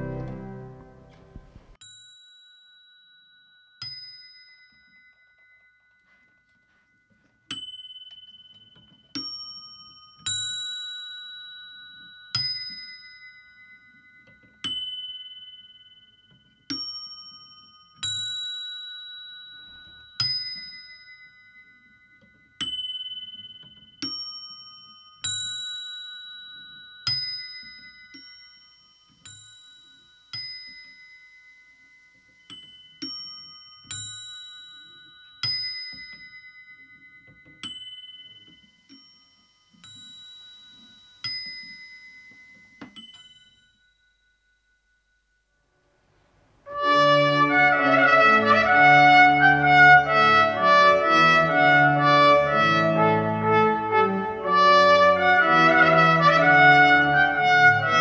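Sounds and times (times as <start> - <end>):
small bells ringing: 1.8 - 45.7.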